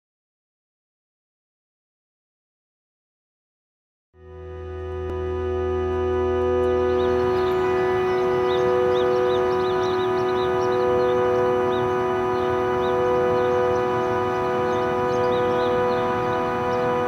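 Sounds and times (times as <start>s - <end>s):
synth pad chord: 4.2s - 17.0s.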